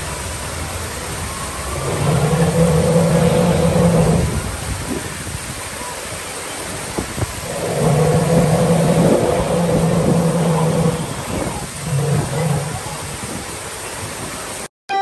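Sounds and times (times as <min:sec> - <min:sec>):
waterfall splashing into a pool: 0:00.0 - 0:14.7
low humming tone: 0:00.9 - 0:04.5.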